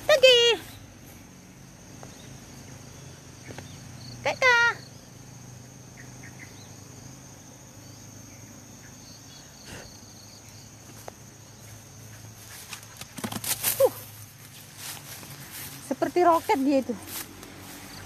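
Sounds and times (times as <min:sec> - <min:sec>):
insects trilling: 0:00.0 - 0:18.0
dog crashing through undergrowth: 0:12.5 - 0:14.2.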